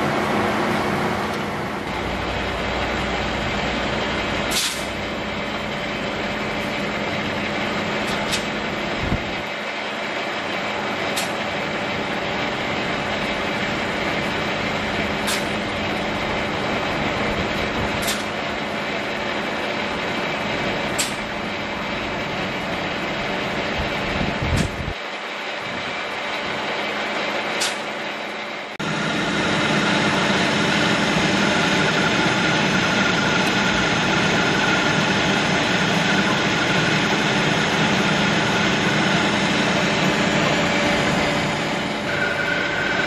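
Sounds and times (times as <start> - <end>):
metal lathe cutting steel: 28.3 - 43.0.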